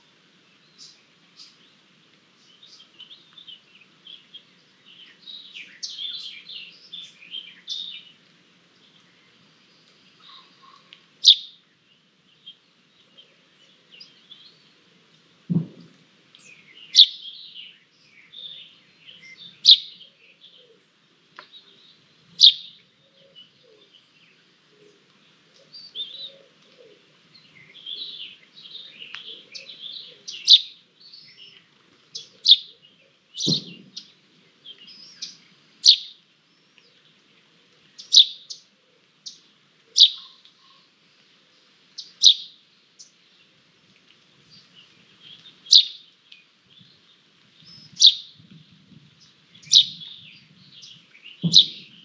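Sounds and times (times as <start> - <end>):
soft bird twittering: 8.8 - 11.6, 21.6 - 24.4, 38.0 - 40.9, 44.5 - 46.9, 49.2 - 52.0
sharp bird calls: 10.2 - 11.6, 16.4 - 17.7, 18.3 - 20.8, 21.6 - 23.9, 25.7 - 36.2, 38.0 - 40.9, 42.0 - 43.2, 44.8 - 46.2, 47.7 - 48.4, 49.6 - 52.0.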